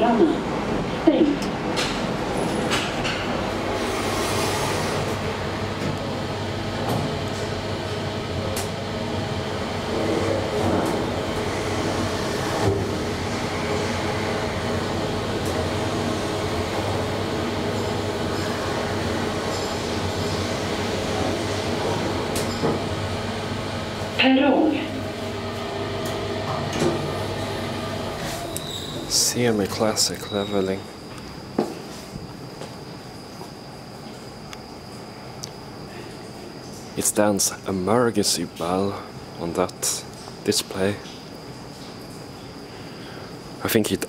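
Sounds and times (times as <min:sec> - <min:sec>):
elevator car rumbling in shaft: 0:00.0 - 0:30.9.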